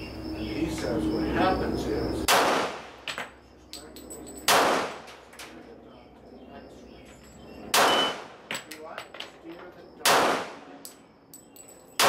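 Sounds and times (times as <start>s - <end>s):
pistol shots: 2.3s - 3.3s, 4.5s - 5.2s, 7.7s - 8.5s, 10.0s - 10.9s.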